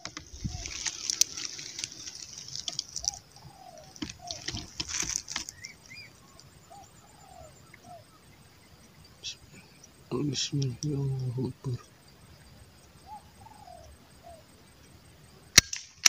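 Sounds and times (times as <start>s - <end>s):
rustling handling noise: 0.0s - 5.6s
short chirping bird calls: 0.2s - 11.2s.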